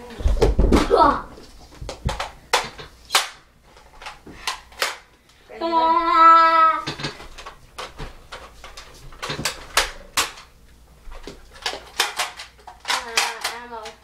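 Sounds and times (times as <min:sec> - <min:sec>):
child shouting: 0:05.5 - 0:06.9
toy blaster plastic clicks: 0:11.6 - 0:14.0.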